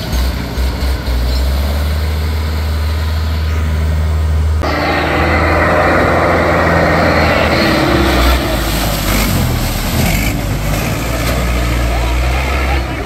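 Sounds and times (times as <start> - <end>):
diesel tractor engine running hard: 0.0 - 13.0.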